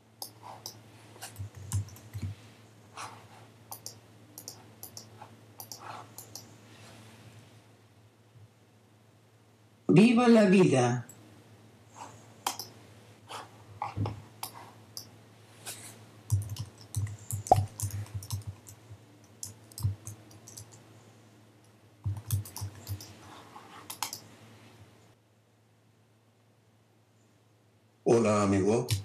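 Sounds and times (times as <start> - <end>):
faint low hum: 0.0 - 29.0
irregular clicks and light knocks: 0.2 - 2.4, 3.7 - 6.5, 12.4 - 12.8, 16.3 - 20.8, 21.6 - 23.2, 23.8 - 24.2.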